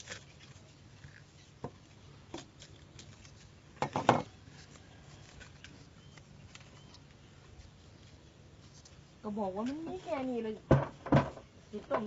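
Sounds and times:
clatter of knocks: 10.7 - 12.0.

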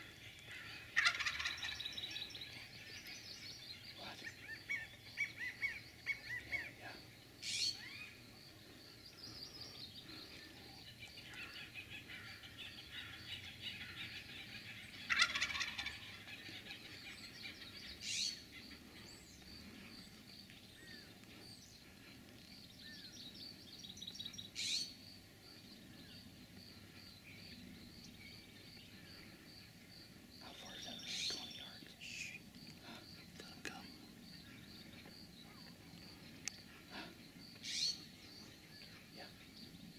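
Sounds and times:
small birds chirping: 0.0 - 39.9
turkey gobbling: 0.9 - 1.8, 13.6 - 17.1.

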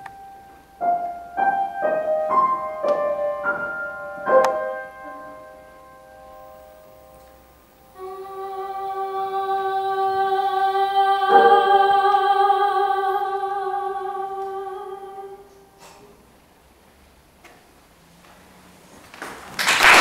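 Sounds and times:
piano chord: 0.0 - 8.4, 10.5 - 15.8
woman singing a long note: 7.9 - 15.8.

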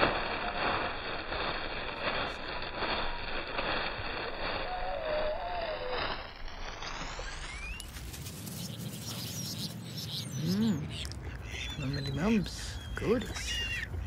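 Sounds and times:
wind: 0.0 - 14.0
wavering bird call: 8.7 - 14.0.

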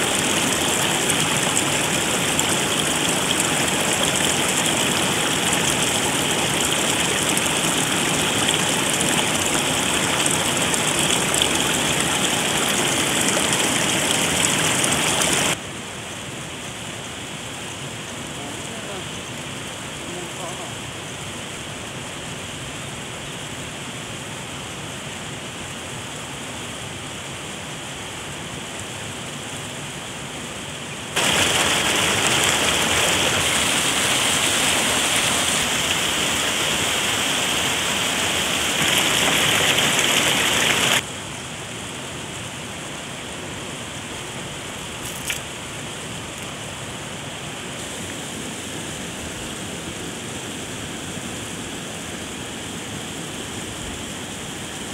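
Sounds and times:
water rushing over rocks: 0.0 - 22.6, 28.2 - 54.9
steady hiss of water: 0.0 - 54.9.

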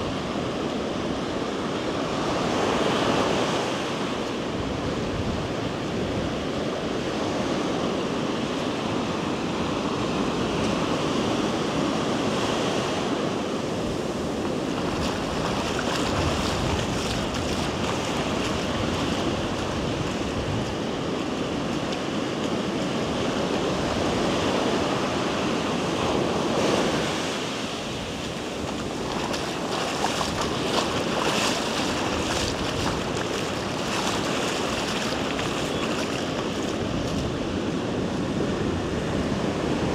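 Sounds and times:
ocean surf washing onto beach: 0.0 - 39.9
wind buffeting microphone: 13.2 - 39.9.

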